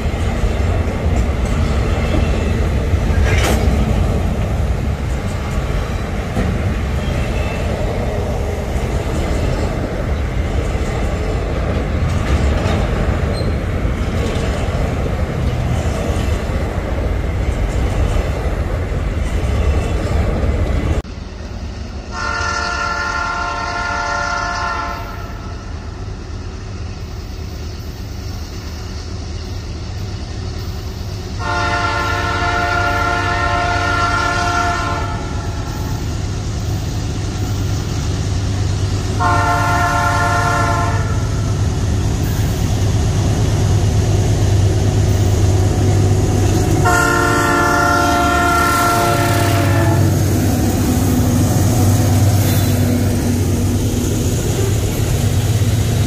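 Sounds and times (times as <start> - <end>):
train engine rumble: 0.0 - 56.0
locomotive air horn blasts: 22.1 - 25.5, 31.4 - 35.6, 39.2 - 41.5, 46.8 - 50.2.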